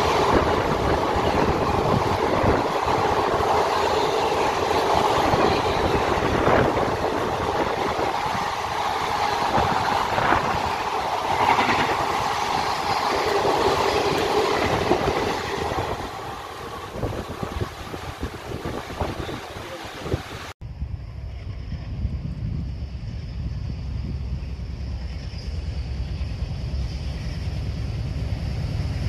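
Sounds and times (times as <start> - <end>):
train wheels rushing on rails: 0.0 - 29.0
train wheel knocks: 9.5 - 15.5.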